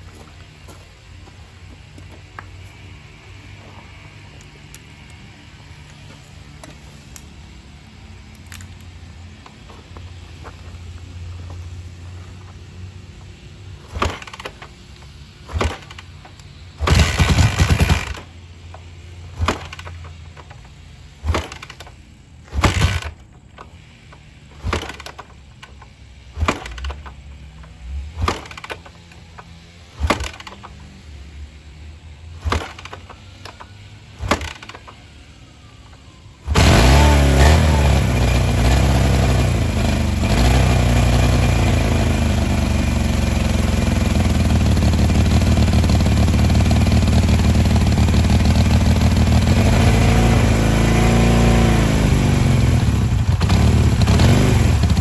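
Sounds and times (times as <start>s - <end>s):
motorcycle kick-start bursts: 13.8s - 14.8s, 15.4s - 30.9s, 32.4s - 35.1s, 36.4s - 55.0s
motorcycle engine running loudly: 15.4s - 18.4s, 36.4s - 55.0s.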